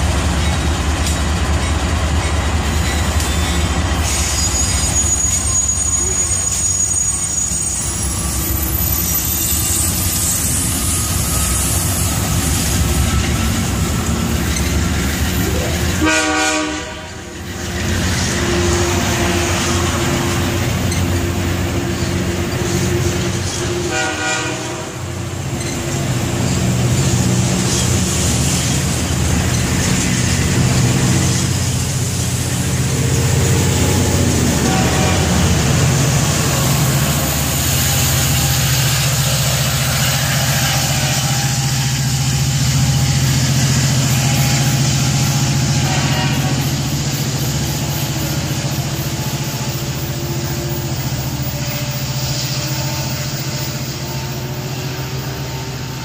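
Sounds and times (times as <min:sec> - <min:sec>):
diesel locomotive engine drone: 0:00.0 - 0:56.0
train rolling past: 0:00.0 - 0:56.0.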